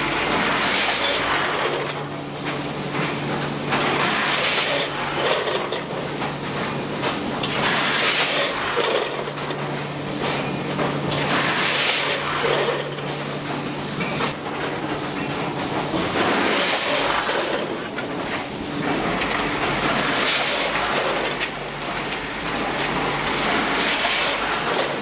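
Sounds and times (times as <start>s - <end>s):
nuggets rattling through hoppers: 0.0s - 25.0s.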